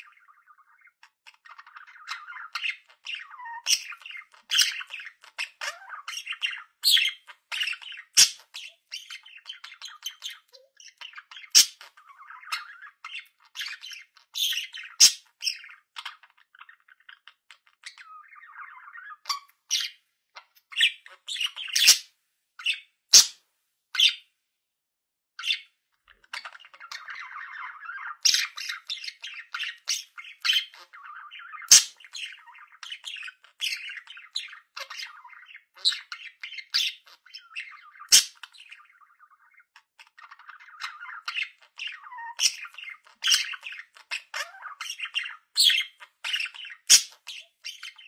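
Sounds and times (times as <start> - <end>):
budgerigar chattering: 0.0 - 19.9, 20.7 - 23.4, 25.4 - 48.0
budgerigar squawks: 3.4 - 9.2, 11.5 - 11.9, 13.6 - 15.2, 20.8 - 23.4, 28.2 - 32.4, 33.6 - 38.5, 42.3 - 48.0.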